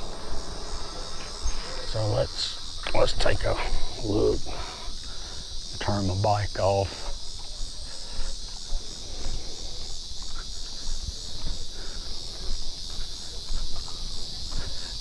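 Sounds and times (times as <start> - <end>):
low rumbling: 0.0 - 2.7
insects chorus: 0.0 - 15.0.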